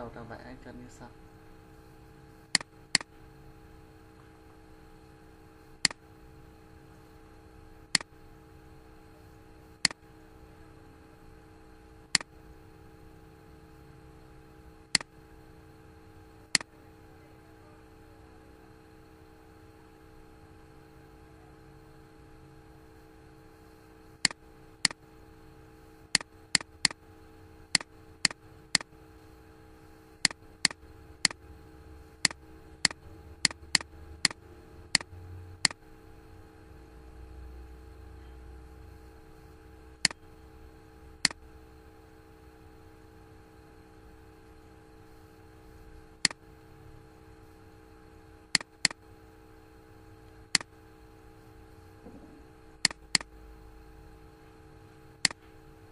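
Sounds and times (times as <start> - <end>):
electrical hum: 0.0 - 55.9
computer mouse clicking: 14.9 - 15.1, 26.1 - 27.0, 27.7 - 28.9, 30.2 - 31.4, 32.2 - 35.8, 48.5 - 49.0, 50.5 - 50.7, 52.8 - 53.3, 55.2 - 55.4.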